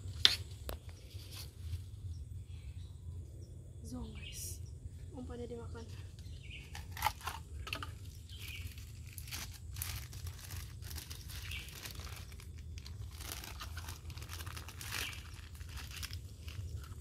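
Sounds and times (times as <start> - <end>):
steady low rumble: 0.0 - 17.0
crackling and rustling: 5.8 - 17.0.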